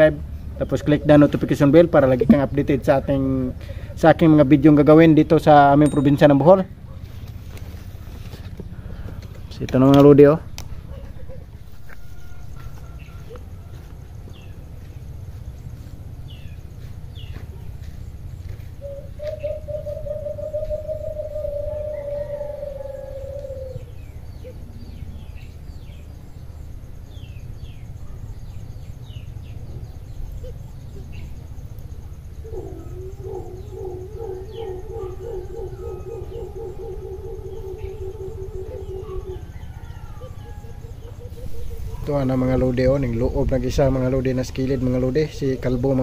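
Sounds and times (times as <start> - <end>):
small birds chirping: 0.0 - 11.8, 14.2 - 46.0
doves hooting: 0.0 - 46.0
low background rumble: 19.9 - 46.0.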